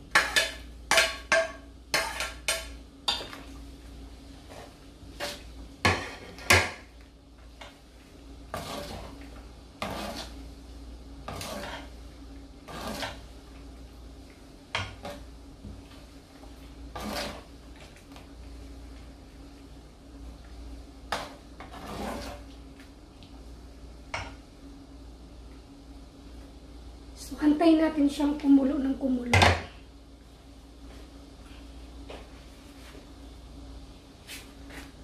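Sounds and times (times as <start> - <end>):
faint steady hum: 0.0 - 35.0
utensil scraping in a pot: 0.1 - 3.3, 4.3 - 6.9, 7.6 - 10.6, 11.2 - 13.6, 15.9 - 18.0, 21.1 - 22.6.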